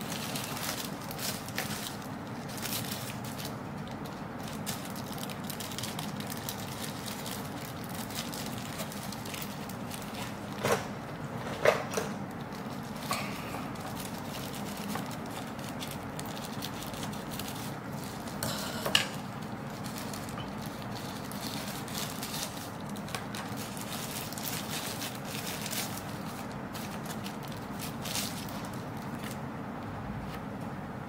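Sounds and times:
tissue paper rustling: 19.3 - 29.4.

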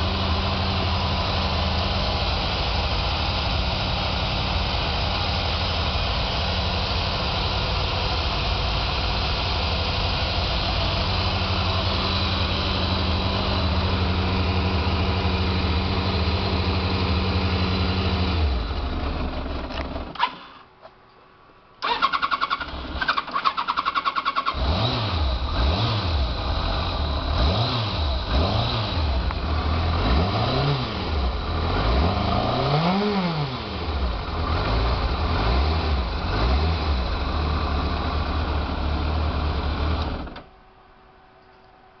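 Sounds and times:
motorcycle engine revving and idling: 0.0 - 20.4, 21.8 - 40.4
motorcycle starter cranking: 21.8 - 24.7.

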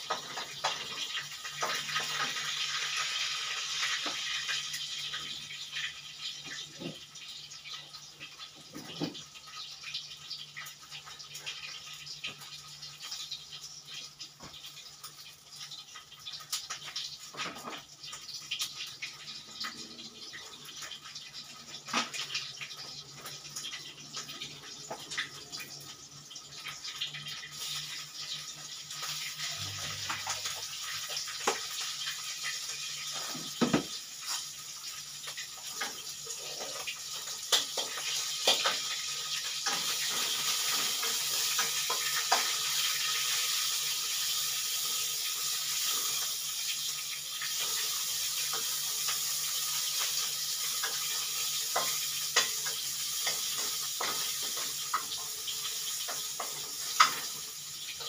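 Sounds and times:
oil sizzling in a wok: 0.0 - 58.0
utensils clinking on pan: 50.0 - 58.0.

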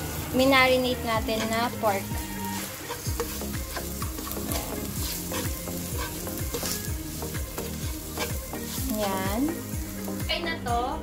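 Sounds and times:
onion sizzling in hot oil: 0.0 - 11.0
plastic spatula stirring: 1.3 - 9.1.

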